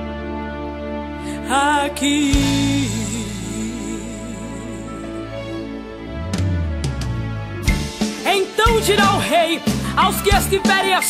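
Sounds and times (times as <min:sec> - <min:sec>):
held low bass note: 0:06.0 - 0:08.0.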